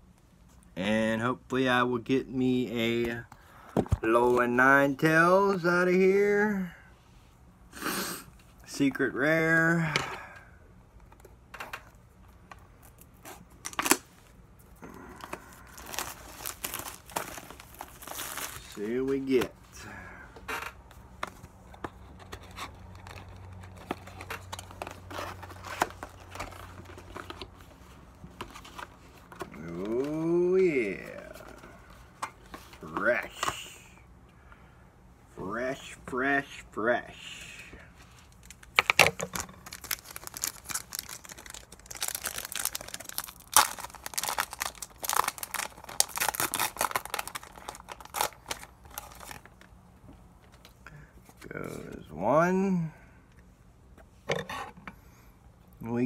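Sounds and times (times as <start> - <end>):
low steady hum: 0.0 - 56.0
packaging crinkling and tearing: 14.8 - 19.5, 22.0 - 27.8, 38.2 - 49.8.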